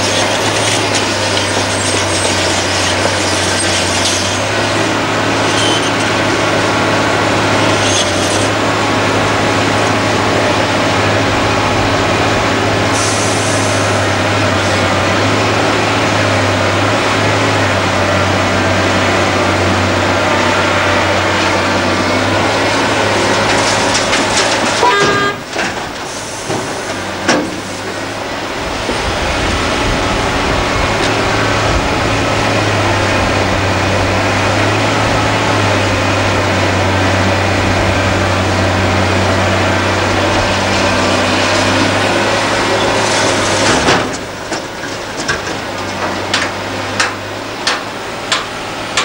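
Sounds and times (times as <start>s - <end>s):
excavator diesel engine and hydraulics: 0.0s - 49.0s
short hydraulic hisses: 13.0s - 13.8s.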